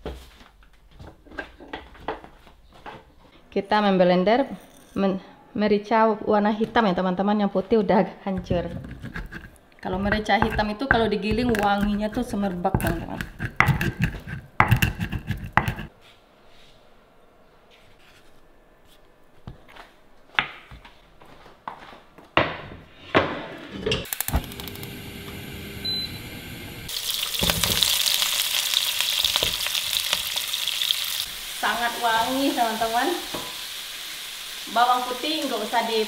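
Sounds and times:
oil sizzling in a pan: 26.8 - 36.0.

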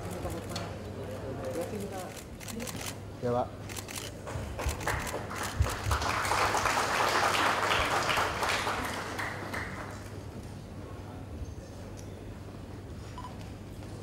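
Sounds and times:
audience applause: 4.2 - 10.3.

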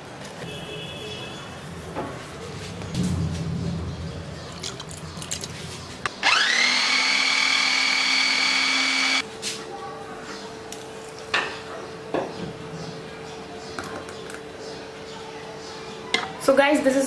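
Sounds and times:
electric chopper motor whining: 6.2 - 9.2.

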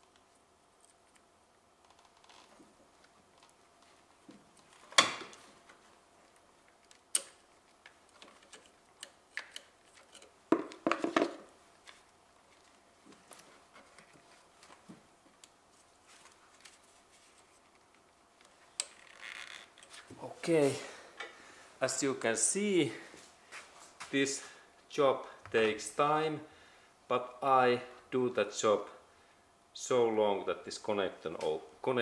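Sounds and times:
small clicks and clatters: 6.3 - 14.8.

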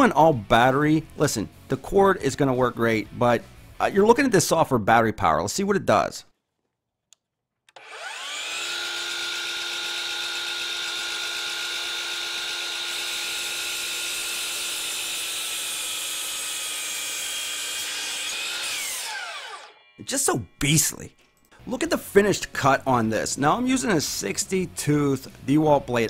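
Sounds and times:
saw blade cutting wood post: 7.8 - 19.8
miter saw whining: 7.8 - 20.9.

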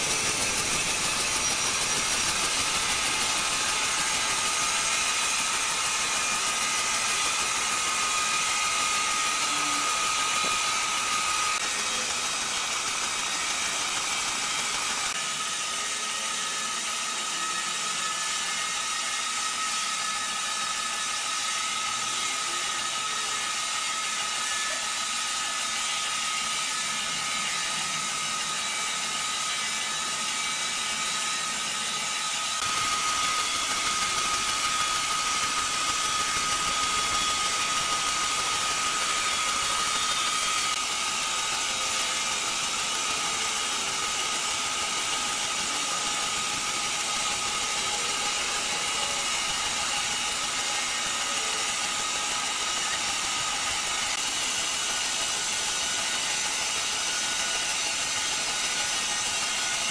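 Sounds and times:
steady whine: 0.0 - 16.1, 26.0 - 57.0
band saw cutting log: 0.0 - 59.9.

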